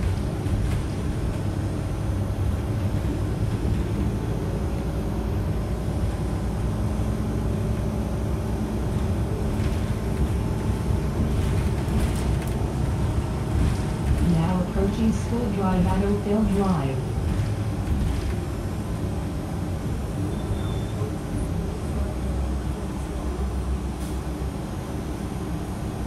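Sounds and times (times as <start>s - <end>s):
bus engine rumble: 0.0s - 26.0s
road noise: 0.0s - 26.0s
light rattles: 8.9s - 14.3s.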